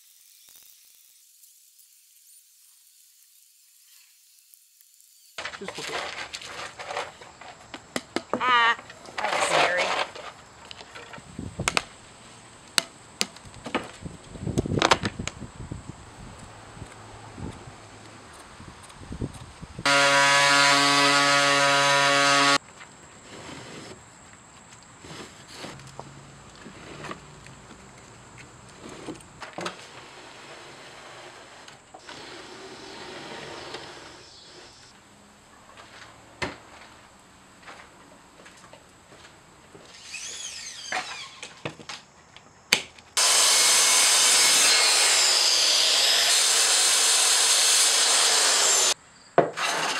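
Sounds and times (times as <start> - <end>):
wooden sliding door scraping: 5.4 - 7.6, 23.2 - 24.0, 25.0 - 25.8, 26.6 - 27.2, 28.8 - 34.8.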